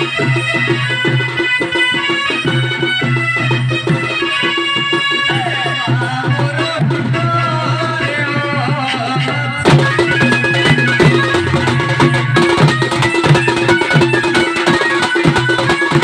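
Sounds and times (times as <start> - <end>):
loud busy drumming: 0.0 - 16.0
wavering melody: 9.2 - 16.0.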